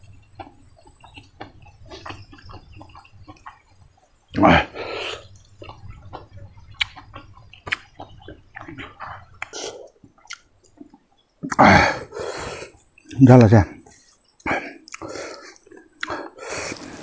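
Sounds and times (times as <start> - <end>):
wet chewing: 0.0 - 13.2, 13.8 - 17.0
lip smacks: 5.6 - 11.7, 14.4 - 16.9
slurping: 13.9 - 17.0.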